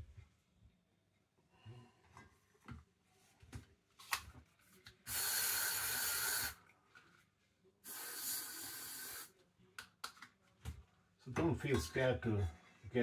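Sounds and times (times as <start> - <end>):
aerosol spray can hissing: 5.1 - 6.6, 7.8 - 9.3.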